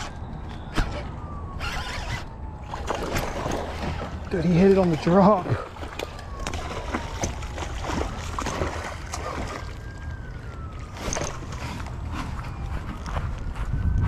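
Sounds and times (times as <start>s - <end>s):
fishing reel cranking: 1.6s - 2.3s
rod and reel clicks: 1.6s - 2.3s
fish splashing in water: 2.6s - 12.1s.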